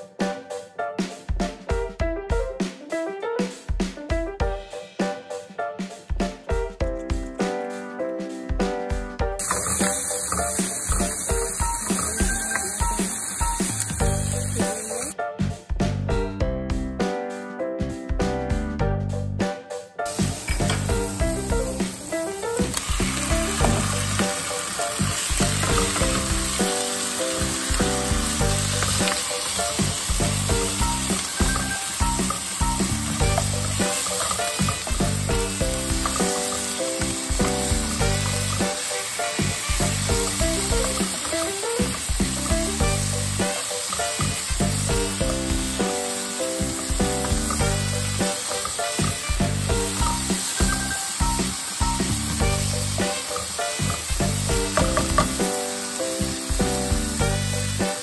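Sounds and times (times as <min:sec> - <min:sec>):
background music: 0:00.0 - 0:58.0
onion and chicken sizzling in oil: 0:09.3 - 0:15.2, 0:20.1 - 0:58.0
spatula stirring in a pan: 0:09.4 - 0:13.2, 0:27.8 - 0:51.0.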